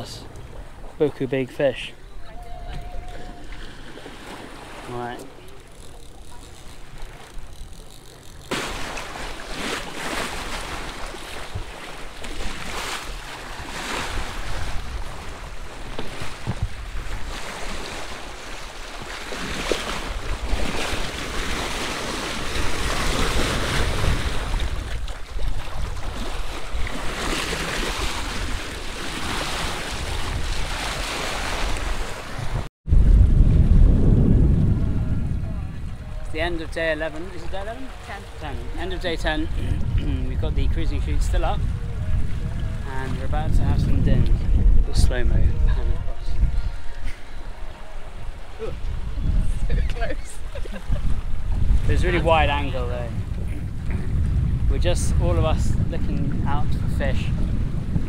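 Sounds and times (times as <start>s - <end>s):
wind buffeting microphone: 1.9s - 58.0s
water splashing along boat hull: 2.2s - 32.7s.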